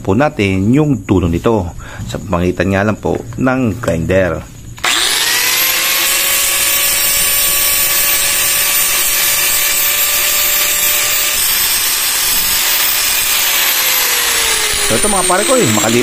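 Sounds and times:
angle grinder whine: 4.8 - 16.0
steel grinding hiss: 4.8 - 16.0.

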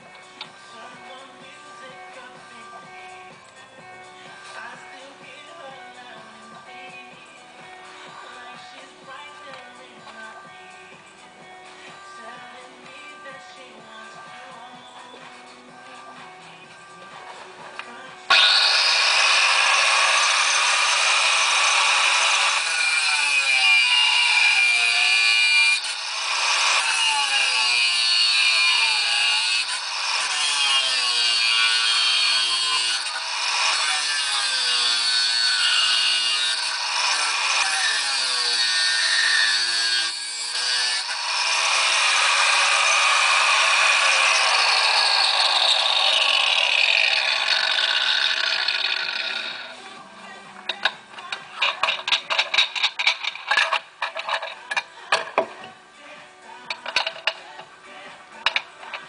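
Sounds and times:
angle grinder cutting metal: 4.3 - 4.8, 17.2 - 50.0, 50.7 - 55.4, 56.7 - 57.6, 58.4 - 59.0.

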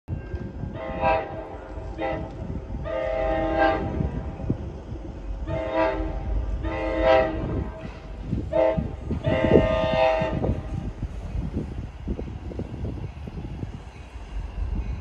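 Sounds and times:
train rumble: 0.1 - 15.0
train horn blasts: 0.7 - 4.4, 5.4 - 10.9.

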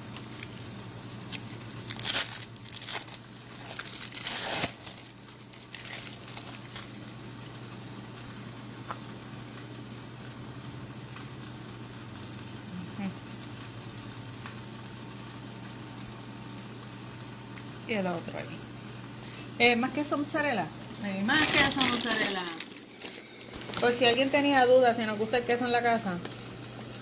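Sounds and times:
wrapper crinkling and tearing: 0.0 - 7.2, 20.9 - 24.4
low steady hum: 0.0 - 27.0.

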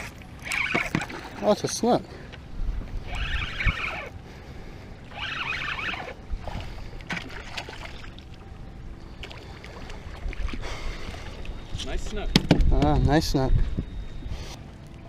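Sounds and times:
fishing reel cranking: 0.4 - 1.0, 3.0 - 4.2, 5.1 - 6.2.

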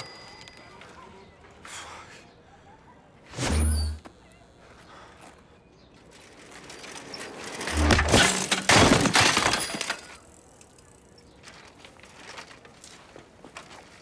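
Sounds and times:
bicycle crashing onto paving: 6.3 - 10.2.

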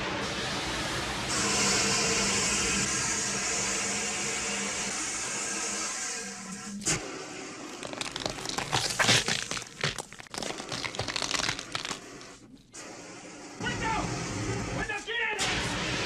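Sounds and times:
crackling crunching creature effects: 7.7 - 12.4.

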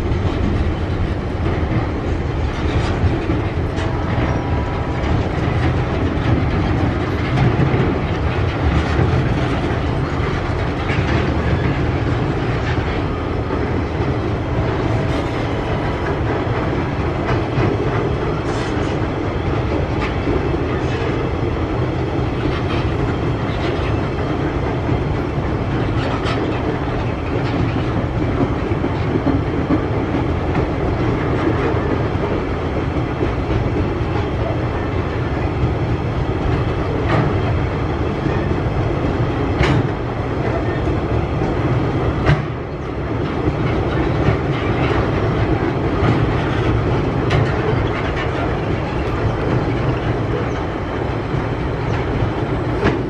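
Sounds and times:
train wheels rumbling on rail: 0.0 - 53.0
clicks and clanks: 39.6 - 40.6.

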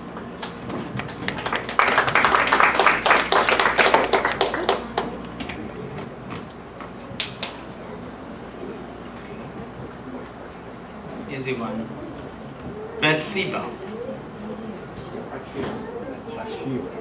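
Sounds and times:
small audience clapping: 0.4 - 6.1, 6.8 - 7.8.

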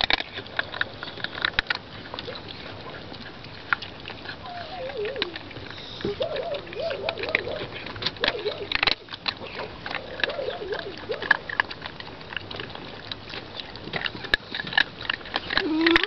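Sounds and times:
kibble clicking against metal bowl: 0.0 - 16.0
puppies crunching dry kibble: 0.0 - 16.0
puppies lapping: 0.0 - 16.0
puppy whimpers: 4.4 - 11.5, 15.5 - 16.0.

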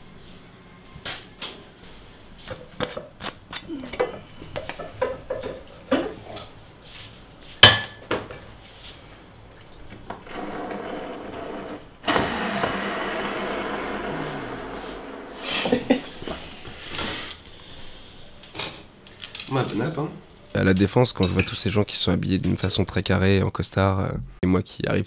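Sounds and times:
dishes clattering: 4.0 - 6.2
steady hiss: 14.2 - 20.5.

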